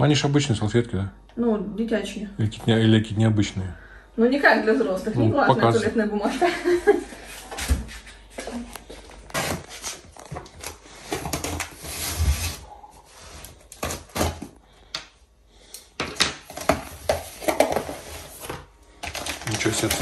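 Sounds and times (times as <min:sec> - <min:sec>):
cardboard scraping and tearing: 0:09.2 - 0:14.6.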